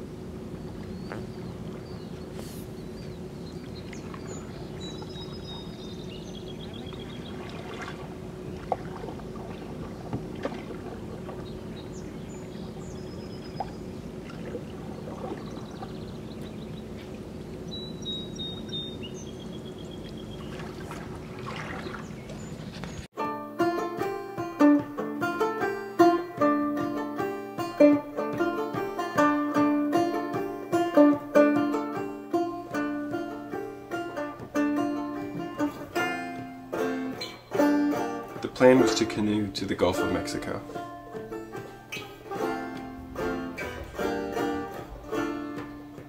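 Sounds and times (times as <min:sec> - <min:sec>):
paddles pulling through water: 0:00.0 - 0:23.1, 0:24.0 - 0:46.0
steady low hum: 0:00.0 - 0:46.0
trickling water drips: 0:03.0 - 0:17.7, 0:19.9 - 0:22.9.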